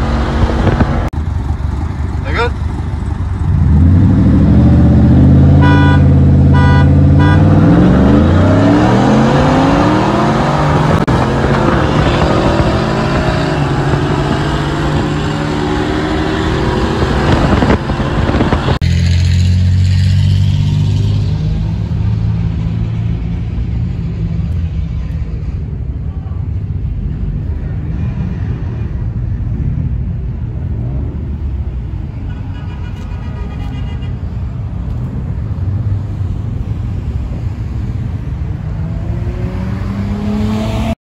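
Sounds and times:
engines revving and accelerating: 3.3 - 24.8, 35.1 - 41.0.

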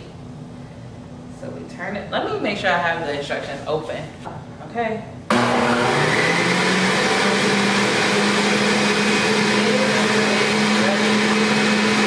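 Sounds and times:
juicer motor whining: 5.3 - 12.0.

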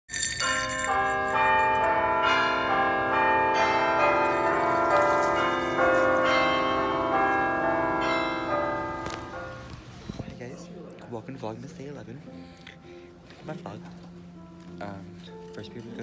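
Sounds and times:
ringing chime notes: 0.1 - 9.2.

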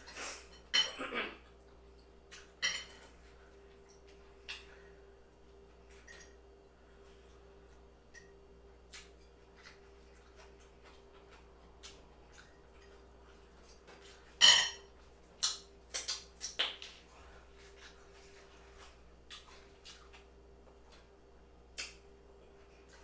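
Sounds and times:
chewing: 7.0 - 14.4, 15.0 - 21.2.

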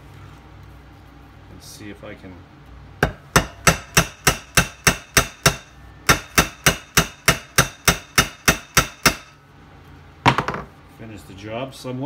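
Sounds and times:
hammer pounding metal: 3.0 - 9.4.

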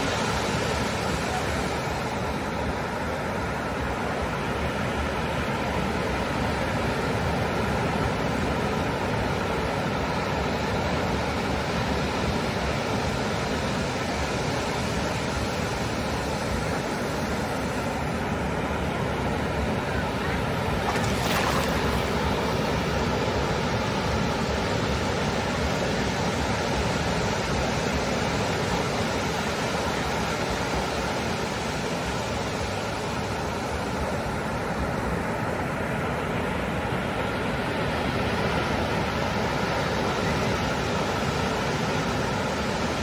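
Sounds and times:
ocean surf breaking on beach: 0.0 - 43.0
ocean surf breaking: 14.9 - 24.5.

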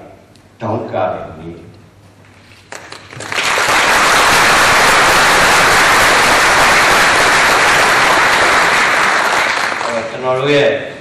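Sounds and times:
audience applauding: 2.7 - 10.2.

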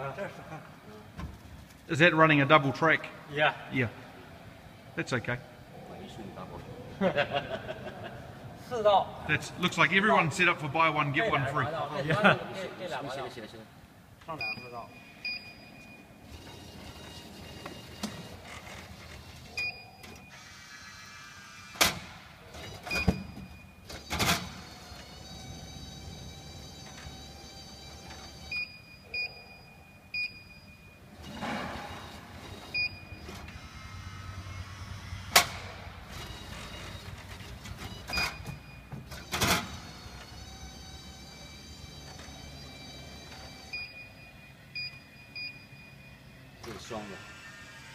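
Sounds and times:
short beeps: 14.4 - 16.2, 43.7 - 46.4
vending machine keypad beeps: 32.6 - 33.4, 37.8 - 39.0, 43.2 - 46.2.

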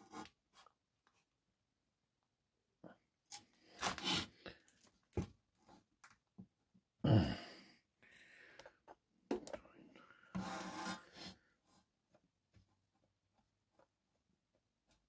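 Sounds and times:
faint rubbing and scraping: 10.2 - 11.8.

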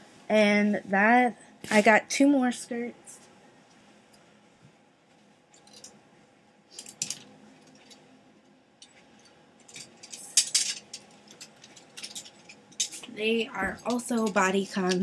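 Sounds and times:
clothes hangers clinking on rail: 8.9 - 15.0.

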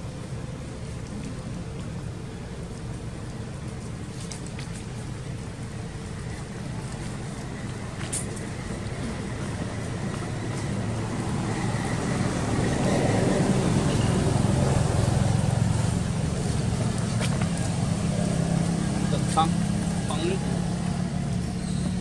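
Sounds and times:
motor vehicle engine passing: 8.4 - 22.0.

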